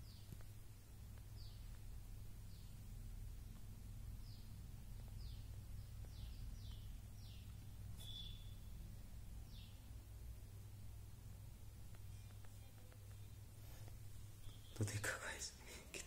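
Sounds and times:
steady low hum: 0.0 - 16.0
faint bird chirps: 1.2 - 10.0, 11.8 - 15.6
bird whistle: 8.0 - 8.7.

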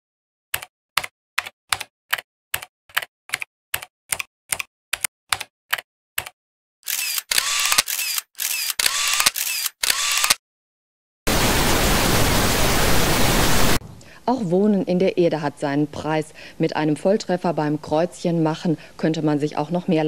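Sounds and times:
keystroke clicks: 0.6 - 10.4.

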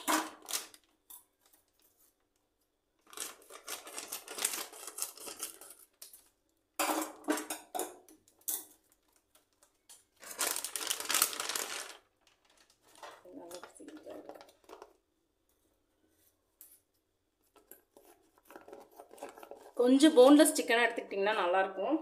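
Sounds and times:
plastic packet crinkling and tearing: 0.0 - 1.0, 3.0 - 6.4, 9.0 - 15.0.

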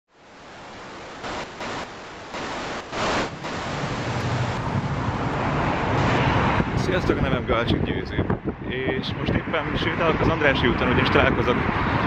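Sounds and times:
static-like hiss: 0.1 - 4.6
short noise bursts: 1.2 - 4.6
street traffic rumble: 1.2 - 12.0
wind buffeting microphone: 2.8 - 12.0.

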